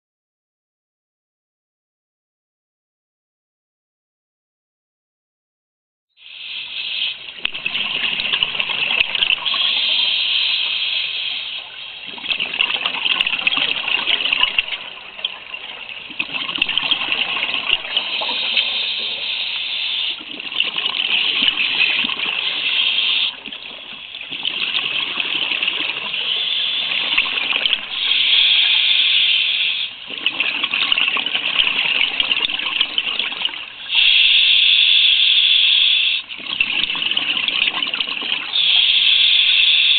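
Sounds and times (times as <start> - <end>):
underwater regulator breathing: 6.2 - 11.8, 16.6 - 20.3, 21.0 - 30.1, 31.4 - 36.3, 38.4 - 39.9
bubbles rushing: 7.4 - 9.8, 12.1 - 18.9, 20.2 - 22.6, 23.4 - 28.1, 30.1 - 33.8, 36.3 - 38.6.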